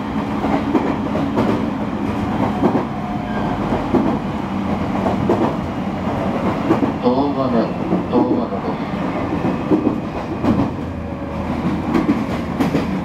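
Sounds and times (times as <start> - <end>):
train wheels and motors rumbling: 0.0 - 13.0
wheels clicking over rail joints: 11.6 - 13.0.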